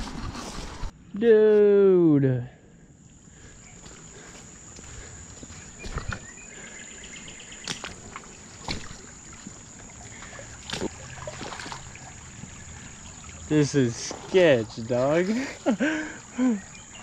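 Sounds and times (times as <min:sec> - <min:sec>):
creek water flowing: 0:03.1 - 0:17.0
footsteps splashing on stones: 0:03.8 - 0:06.3, 0:07.6 - 0:12.6.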